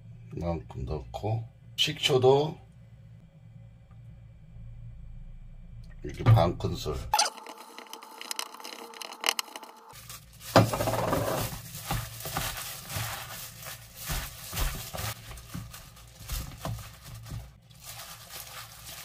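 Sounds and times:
leaves and glove rustling: 9.9 - 19.0.

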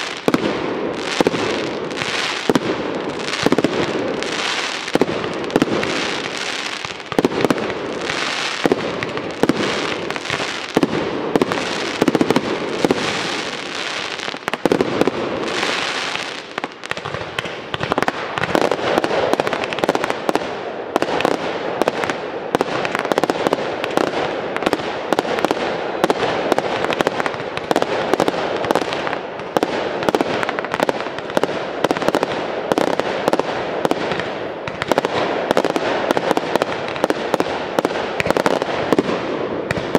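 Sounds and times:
fireworks bursting: 0.0 - 39.9
fireworks crackling pops: 0.0 - 39.9.

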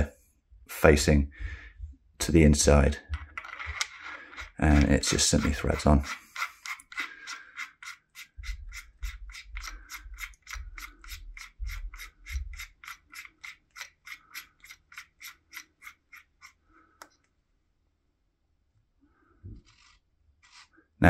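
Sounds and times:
ratcheting clicks: 3.2 - 17.2.

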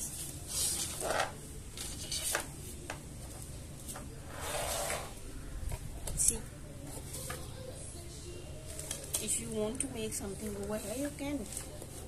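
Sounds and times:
soft rubbing and swishing: 1.8 - 5.3, 10.3 - 12.0.

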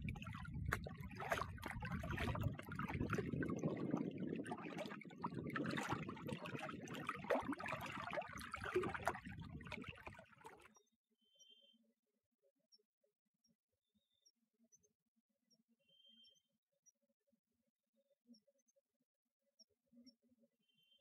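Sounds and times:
lake waves lapping on shore: 0.0 - 10.7.

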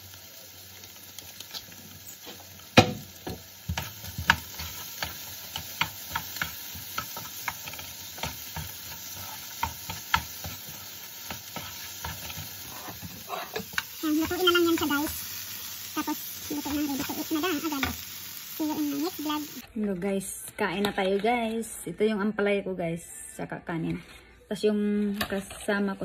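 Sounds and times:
food sizzling in a frying pan: 0.0 - 19.7
wooden spatula scraping a pan: 3.7 - 15.0.

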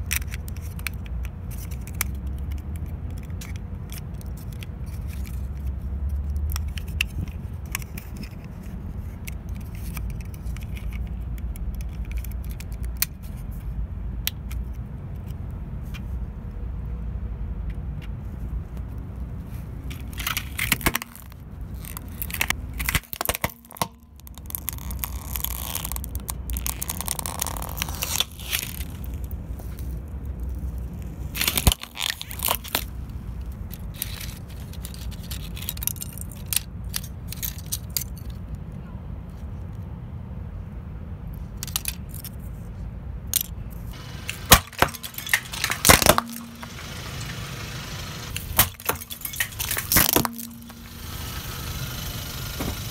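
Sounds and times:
car tyre crushing plastic toy: 0.0 - 16.1, 19.5 - 38.4, 41.5 - 42.5, 43.3 - 52.9
sharp crack: 20.0 - 33.0, 43.4 - 52.9
low steady rumble: 40.5 - 52.9.

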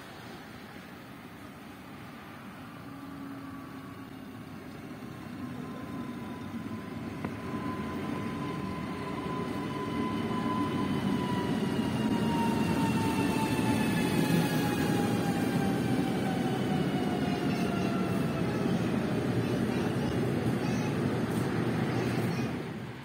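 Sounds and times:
train traction motor whine: 2.2 - 18.6
train wheels rumbling on rails: 2.9 - 23.0.

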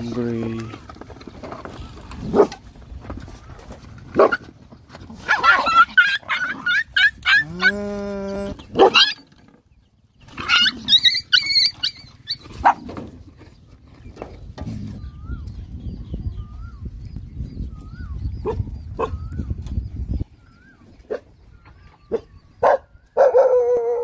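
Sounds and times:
dogs snapping and barking: 4.0 - 7.8
puppies yelping and squealing: 4.2 - 13.3
dog crying: 5.3 - 9.3, 10.4 - 12.8.

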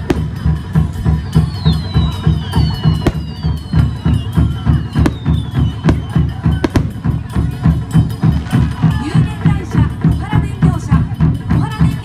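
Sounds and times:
drums beating a steady rhythm: 0.0 - 12.0
sharp cracks: 3.1 - 3.6.

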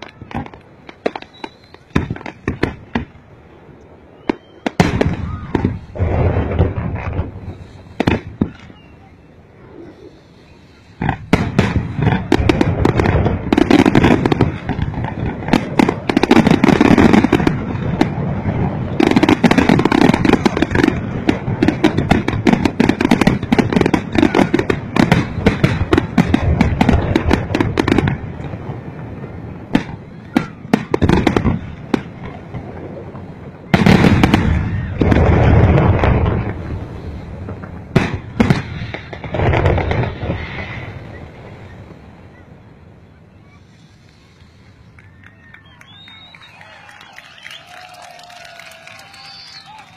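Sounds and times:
sharp firework bangs: 0.0 - 3.2, 4.2 - 8.9, 10.8 - 42.0
fireworks bursting and crackling: 0.0 - 49.9.

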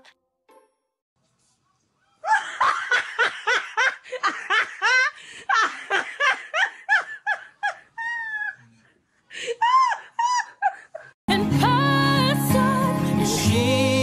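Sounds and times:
person laughing: 2.2 - 8.8, 9.4 - 11.2.

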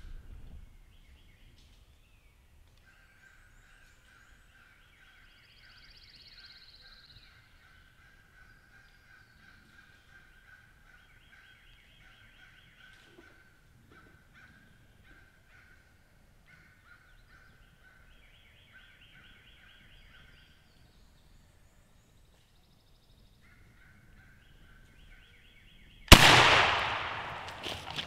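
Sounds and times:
shotgun blast: 26.1 - 28.0.

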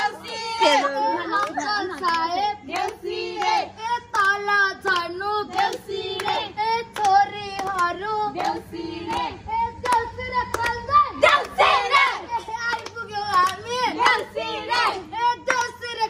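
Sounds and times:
women singing together: 0.0 - 16.0
hand claps: 1.3 - 11.6, 12.6 - 14.3, 15.4 - 15.9.

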